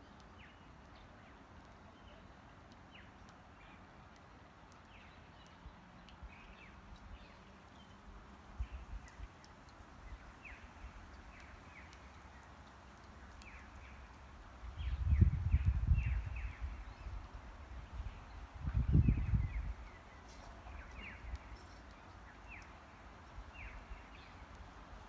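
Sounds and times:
small birds chirping: 0.0s - 24.7s
faint outdoor hiss: 0.0s - 25.0s
wind buffeting microphone: 14.6s - 20.1s.

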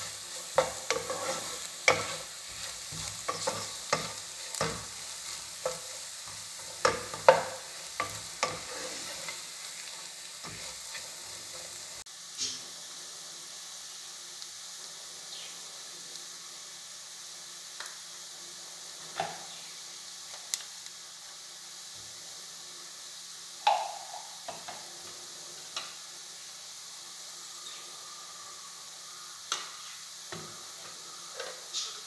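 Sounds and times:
onions sizzling in oil: 0.0s - 32.0s
utensils knocking against pan: 6.6s - 9.0s.

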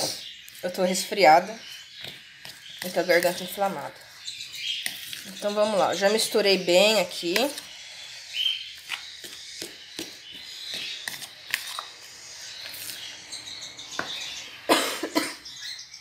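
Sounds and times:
bird chirp: 0.0s - 16.0s
woman coughing: 14.7s - 15.5s.

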